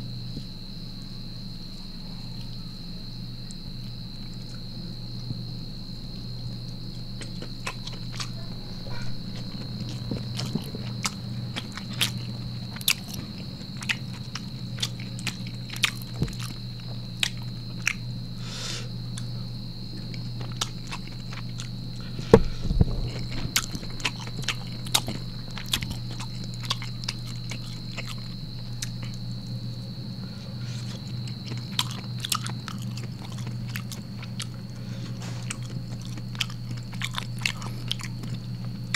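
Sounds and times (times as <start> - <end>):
faint high whine: 0.0 - 38.9
steady low hum: 0.0 - 38.9
person chewing food: 6.5 - 18.0, 20.0 - 29.6, 30.6 - 38.9.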